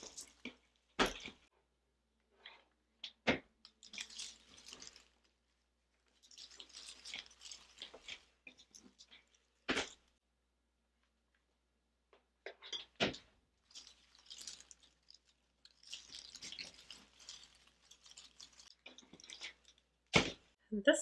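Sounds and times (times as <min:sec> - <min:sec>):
artificial flower stems rustling: 0:00.0 - 0:01.5, 0:03.6 - 0:10.2, 0:12.6 - 0:20.6.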